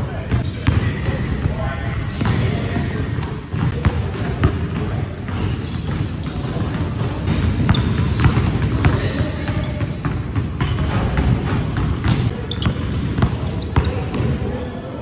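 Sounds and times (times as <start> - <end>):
sneakers squeaking: 0.0 - 15.0
basketball bouncing on wooden floor: 3.6 - 14.3.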